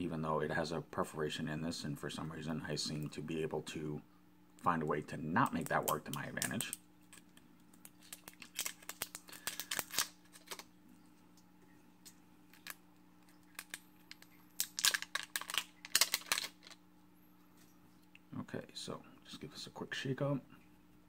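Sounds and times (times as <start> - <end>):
plastic wrap crinkling: 5.5 - 10.8, 12.0 - 16.8.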